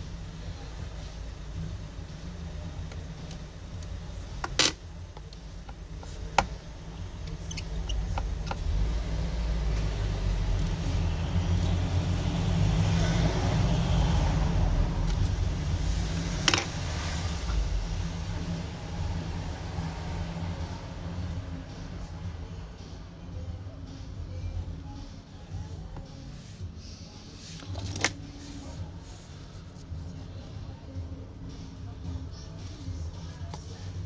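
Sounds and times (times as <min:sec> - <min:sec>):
low rumble: 0:06.7 - 0:27.0.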